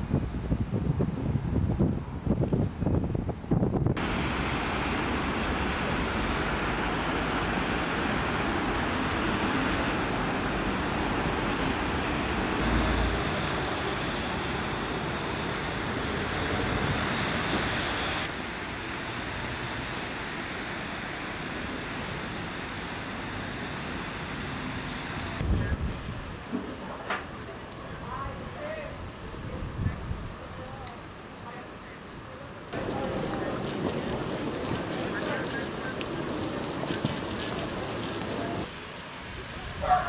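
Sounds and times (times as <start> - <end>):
wind buffeting microphone: 0.0 - 4.5, 32.8 - 38.7
wind: 0.0 - 40.0
distant city traffic: 4.0 - 25.4, 32.8 - 40.0.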